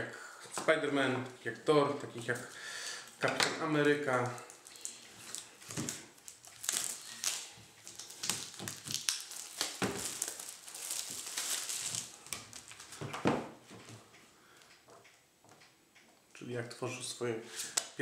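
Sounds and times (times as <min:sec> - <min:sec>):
plastic shrink-wrap crinkling: 0:01.4 - 0:13.1.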